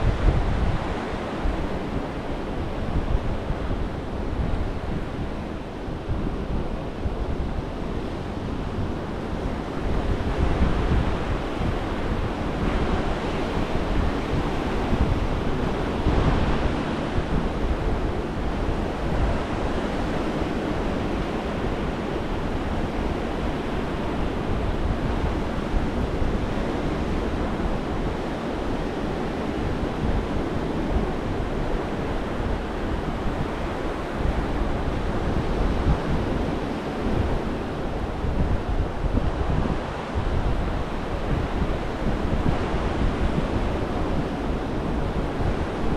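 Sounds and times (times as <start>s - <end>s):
wind buffeting microphone: 0.0s - 45.9s.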